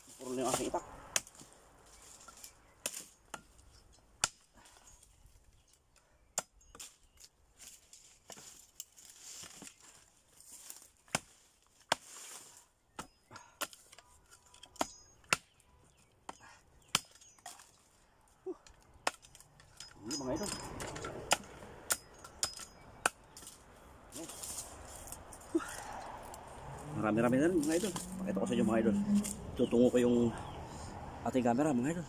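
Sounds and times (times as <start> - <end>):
machete chopping wood: 0.4 - 1.5, 2.4 - 3.6, 4.2 - 4.6, 11.1 - 12.4, 13.0 - 15.6, 16.3 - 17.7, 19.0 - 19.4, 20.3 - 23.6.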